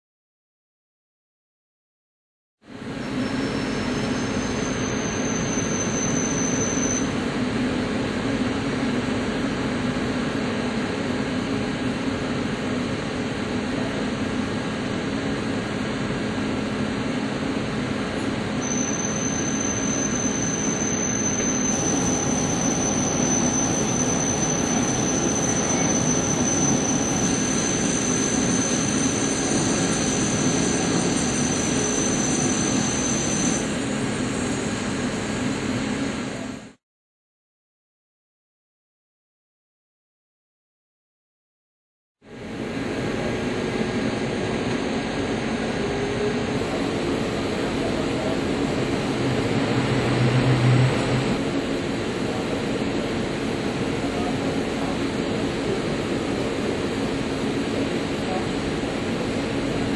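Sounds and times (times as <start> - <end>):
high-pitched cutting squeal: 18.6 - 33.8.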